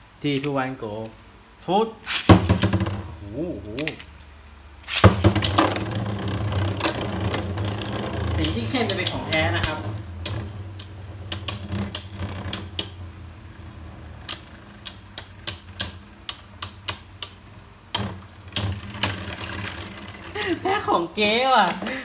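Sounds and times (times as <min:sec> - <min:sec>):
spinning tops clacking together: 0:02.0 - 0:22.0
spinning tops whirring: 0:04.8 - 0:22.0.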